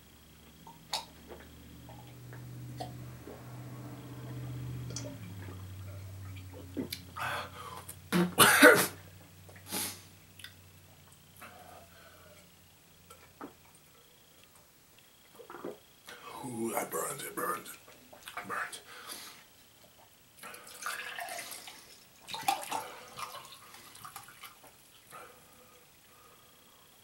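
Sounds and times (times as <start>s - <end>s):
man gulping liquid: 0.6s - 3.0s, 15.3s - 16.3s, 20.0s - 24.6s
man clearing his throat: 8.1s - 9.0s
man coughing: 8.2s - 9.0s.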